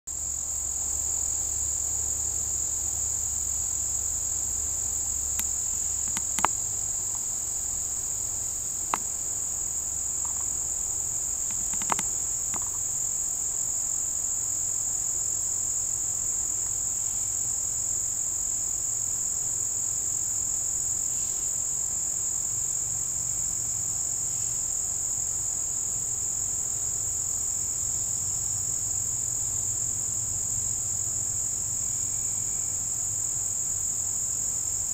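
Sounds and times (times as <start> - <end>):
high-pitched insect chorus: 0.1 - 34.9
short clicks: 5.4 - 6.6, 11.4 - 12.8.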